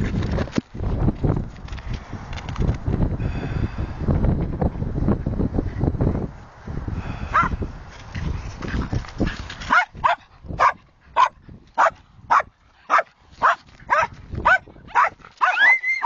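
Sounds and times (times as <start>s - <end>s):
dog barking: 7.3s - 7.6s, 9.7s - 15.7s.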